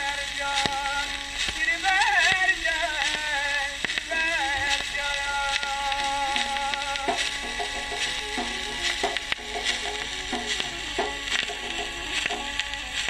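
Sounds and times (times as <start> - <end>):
man singing long notes: 0.0 - 9.4
record clicks: 0.0 - 13.0
record surface hiss: 0.0 - 13.0.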